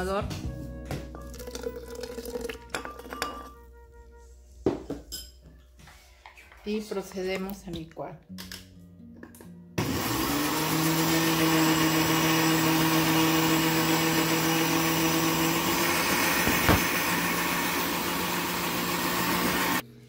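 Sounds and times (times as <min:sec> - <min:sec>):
blender running: 0:09.8 - 0:19.8.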